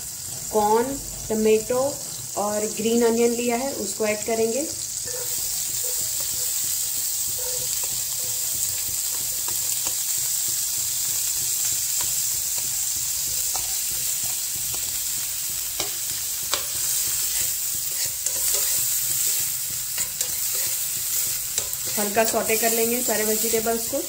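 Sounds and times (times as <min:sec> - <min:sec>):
vegetables sizzling in hot oil: 0:00.0 - 0:24.0
spoon scraping and clicking on pan: 0:08.7 - 0:10.6, 0:12.0 - 0:22.7.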